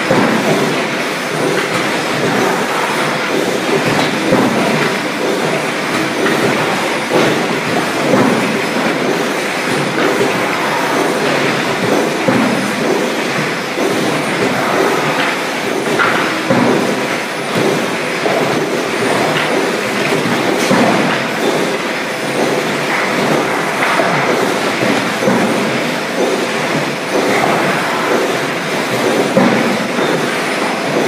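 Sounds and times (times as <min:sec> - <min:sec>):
machinery clattering: 0:00.0 - 0:31.0.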